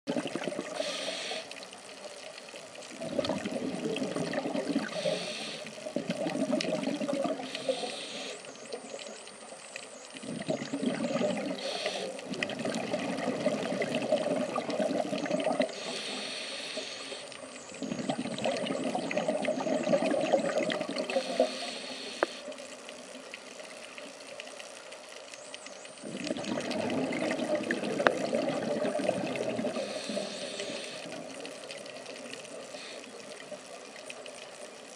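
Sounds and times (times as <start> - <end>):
exhaled bubbles burbling underwater: 0.1 - 9.2, 10.0 - 16.7, 17.4 - 22.4, 25.9 - 34.9
regulator inhale hiss: 0.6 - 1.8, 4.7 - 6.0, 7.3 - 8.8, 11.3 - 12.4, 15.6 - 17.7, 21.0 - 22.8, 29.4 - 31.6, 32.5 - 33.5.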